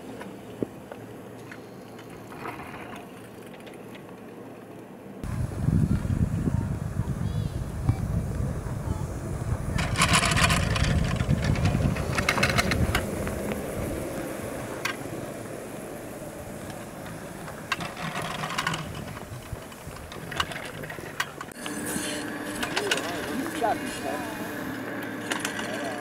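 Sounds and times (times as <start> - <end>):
low lift rumble: 5.2 - 26.0
rapid rattling clicks of lift rope: 9.7 - 26.0.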